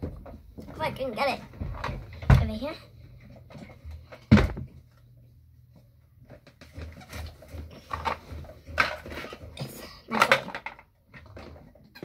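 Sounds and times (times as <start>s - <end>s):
objects moved on a desk: 6.2s - 12.0s.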